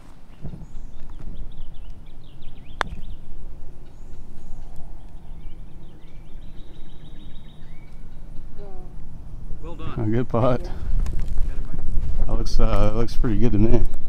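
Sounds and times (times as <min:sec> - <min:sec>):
birds chirping: 0:00.0 - 0:14.0
steady low rumble: 0:00.0 - 0:14.0
putter striking golf ball: 0:02.7 - 0:03.2.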